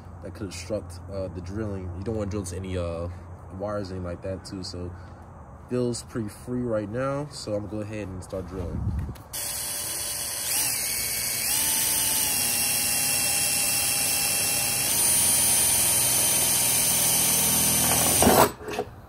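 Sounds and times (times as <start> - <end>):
cordless drill motor whining: 9.3 - 18.2
drill scraping plastic: 9.4 - 18.9.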